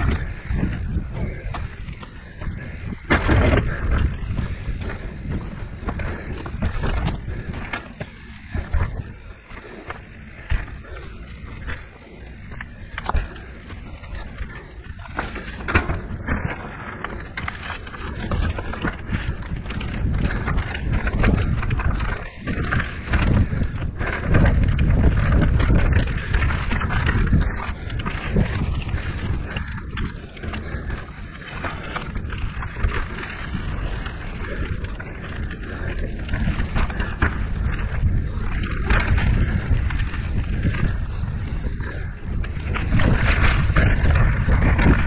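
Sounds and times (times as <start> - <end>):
low rumble: 0.0 - 29.7
bike knocking and rattling: 0.0 - 45.0.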